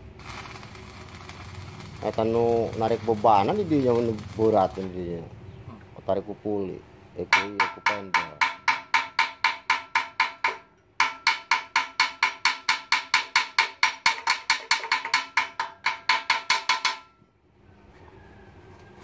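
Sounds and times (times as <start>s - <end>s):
rapid metallic knocking: 7.3s - 17.1s.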